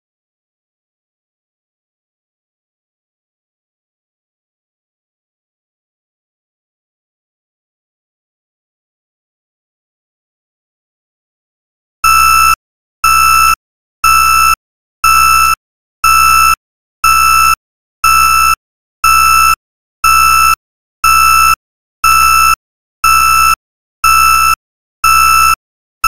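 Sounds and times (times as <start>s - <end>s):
timer alarm beeping: 12.0s - 25.6s.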